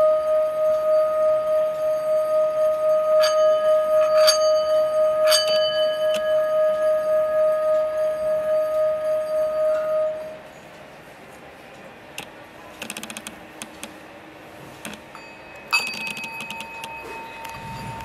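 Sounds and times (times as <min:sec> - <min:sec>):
singing bowl ringing: 0:00.0 - 0:10.4, 0:15.1 - 0:18.0
small bowl struck with mallet: 0:03.1 - 0:06.6.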